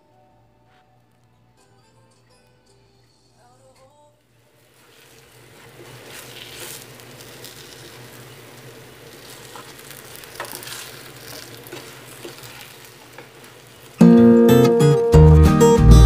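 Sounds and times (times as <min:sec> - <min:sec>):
food sizzling in a pan: 0:04.4 - 0:14.6
spatula stirring: 0:04.5 - 0:14.0.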